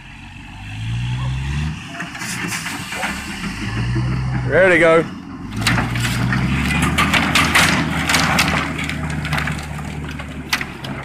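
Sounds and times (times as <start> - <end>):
truck engine running: 0.0 - 11.0
wooden trusses clattering down: 1.9 - 11.0.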